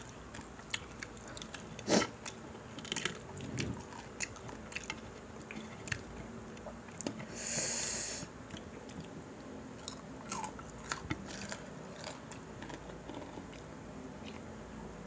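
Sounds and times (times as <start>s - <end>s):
chewing: 0.0s - 7.3s, 8.5s - 9.2s, 9.8s - 14.5s
crunchy food rustle: 9.8s - 13.6s.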